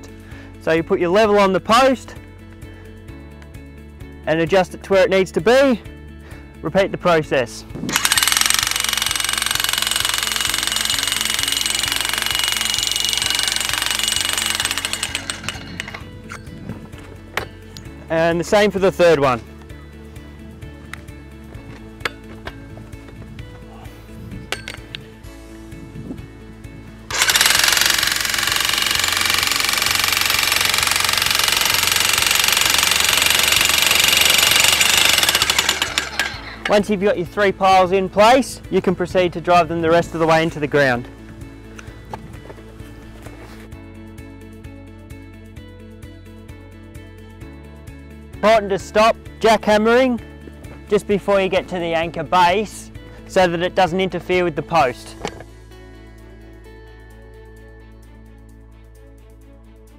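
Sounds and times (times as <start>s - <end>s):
background music: 0.0s - 59.9s
jackhammer hammering: 7.9s - 16.1s, 27.1s - 36.8s.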